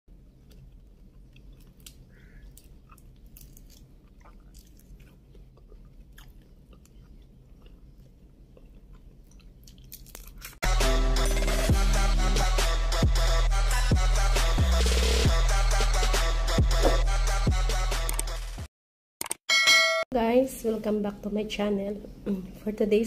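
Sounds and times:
shrimp shells cracking: 0.5 - 5.3, 9.3 - 10.6
loud music: 10.6 - 18.7.

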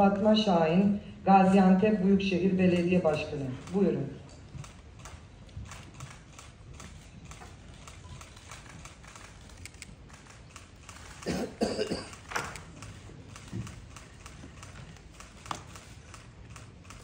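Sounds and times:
person coughing: 11.2 - 12.3.

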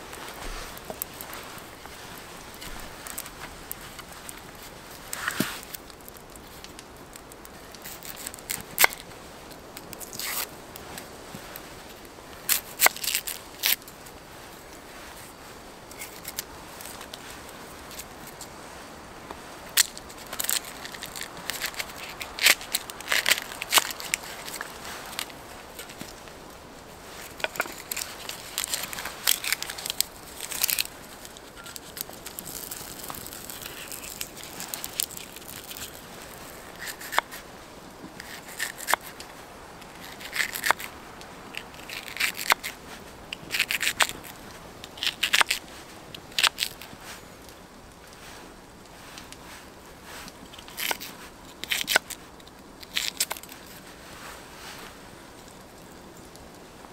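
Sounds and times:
wood stove crackling and popping: 0.0 - 56.9
onion skin being peeled: 0.3 - 11.1, 12.4 - 14.0, 15.8 - 18.5, 19.7 - 26.4, 27.0 - 37.5, 38.1 - 47.0, 50.2 - 53.8
knife crunching through onion: 19.7 - 26.1, 27.2 - 37.4, 38.2 - 39.1, 40.0 - 40.9, 41.6 - 42.8, 50.6 - 52.2.

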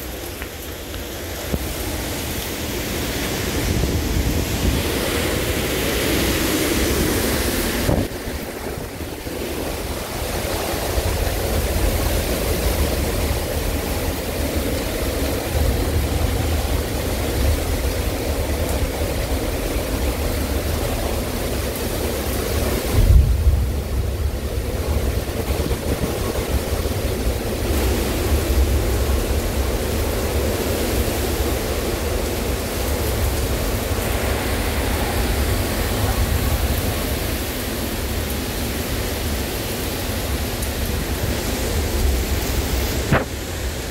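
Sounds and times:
driving rain: 0.0 - 43.9
wind rumble on microphone: 0.1 - 43.9
wind rushing: 1.7 - 12.8.

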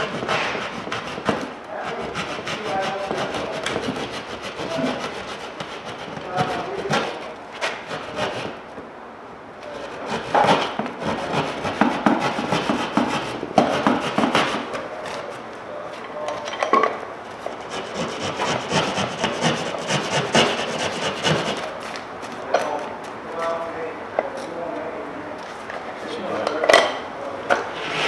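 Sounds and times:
hand tool rasping drywall: 0.0 - 8.6, 9.7 - 14.8, 17.5 - 21.7.

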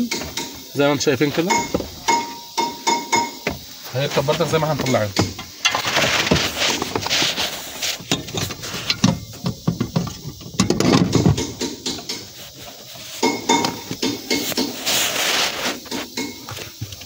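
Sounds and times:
metallic clinks and knocks: 1.4 - 3.8, 8.0 - 14.7.

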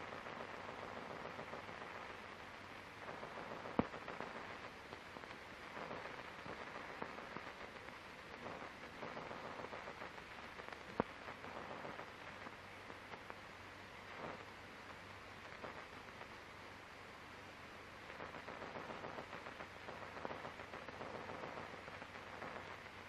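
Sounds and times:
film soundtrack hiss and crackle: 0.0 - 23.0
sharp pops: 3.6 - 4.3.

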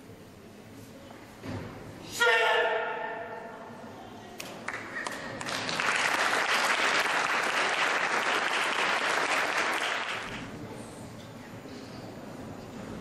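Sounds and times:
audience applauding: 4.6 - 10.4.

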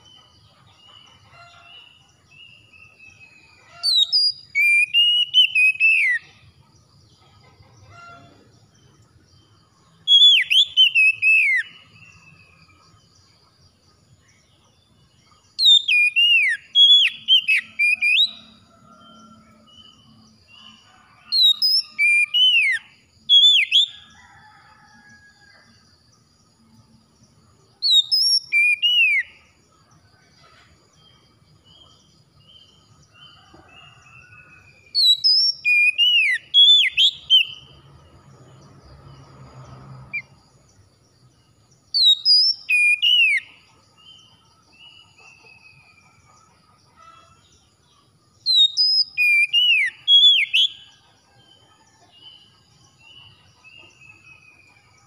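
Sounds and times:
bird singing whistled notes: 1.5 - 6.4, 9.8 - 12.8, 15.0 - 24.1, 27.8 - 29.5, 32.7 - 37.8, 41.9 - 46.2, 48.4 - 51.0.

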